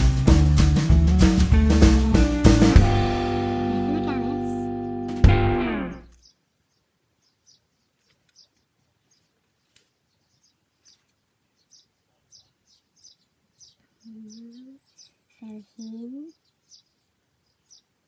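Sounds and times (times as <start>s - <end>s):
faint bird chirps: 5.9s - 18.0s.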